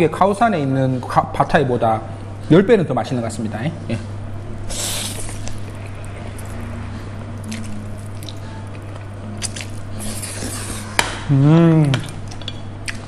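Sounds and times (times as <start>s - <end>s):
man slurping and chewing noodles: 4.7s - 11.0s
man humming ooh: 11.2s - 12.2s.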